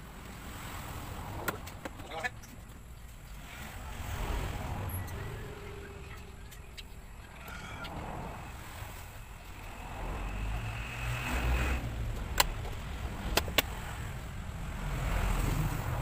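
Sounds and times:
low rumble: 0:02.8 - 0:16.0
sharp plastic clicks: 0:12.1 - 0:13.8.

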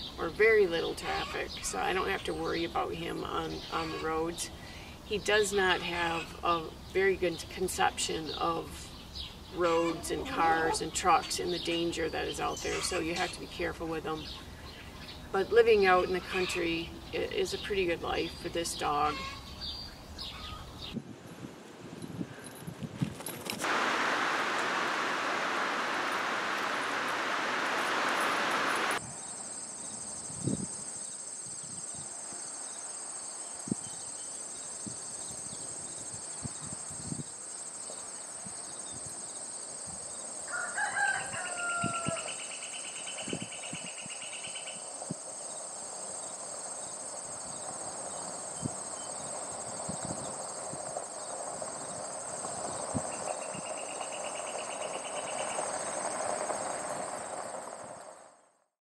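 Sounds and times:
insects buzzing: 0:23.5 - 0:58.2
rooster crowing: 0:40.5 - 0:42.4
truck rolling on gravel: 0:45.3 - 0:58.5.

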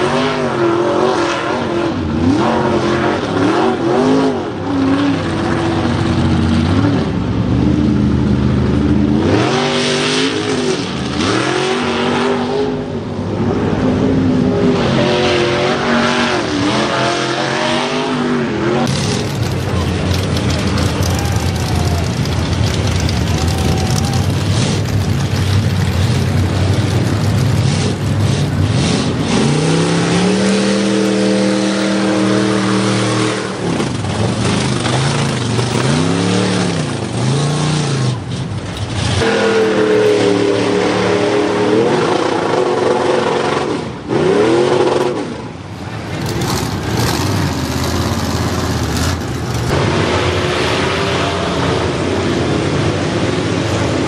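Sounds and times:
truck engines revving hard: 0:00.0 - 0:54.0
tyres churning mud: 0:18.9 - 0:50.8.

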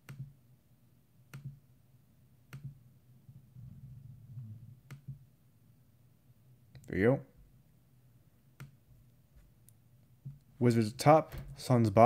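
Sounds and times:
computer mouse clicks: 0:00.0 - 0:00.4, 0:01.3 - 0:01.6, 0:02.5 - 0:02.8, 0:04.8 - 0:05.2, 0:08.6 - 0:08.8
faint low hum: 0:00.0 - 0:12.0.

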